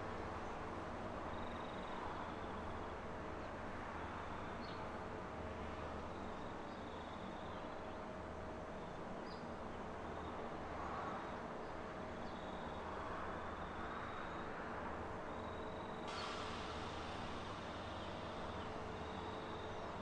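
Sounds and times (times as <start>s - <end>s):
faint steady whine: 12.6s - 20.0s
hiss: 16.1s - 19.7s
electric train rumbling: 16.1s - 20.0s.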